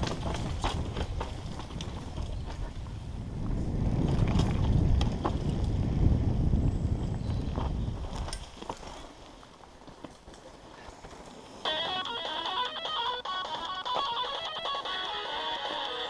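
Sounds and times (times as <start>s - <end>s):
bike clicks and clatter: 0.0s - 2.9s, 4.0s - 5.9s
wind rush on microphone: 0.0s - 9.0s
tyre rumble on dirt: 0.0s - 12.0s.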